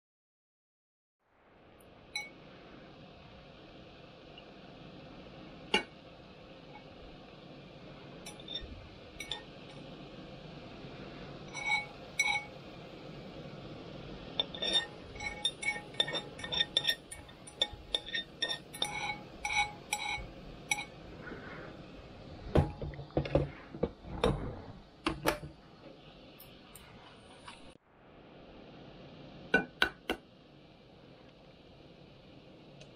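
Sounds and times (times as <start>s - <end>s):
metal chopsticks clinking in pot: 8.3s - 9.5s, 11.5s - 12.6s, 14.4s - 20.9s.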